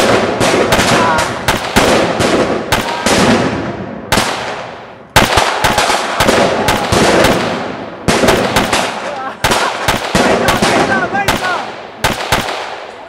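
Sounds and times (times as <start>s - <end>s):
fireworks bangs with hiss: 5.2s - 12.7s.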